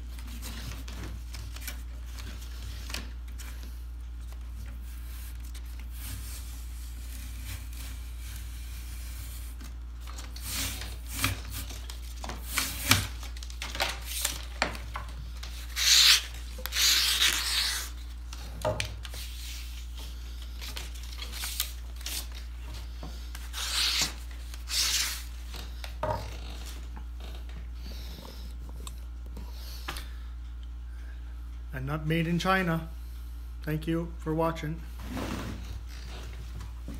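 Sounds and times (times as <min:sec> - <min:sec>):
steady low hum: 0:00.0 - 0:36.9
knife scraping wood: 0:10.3 - 0:11.8.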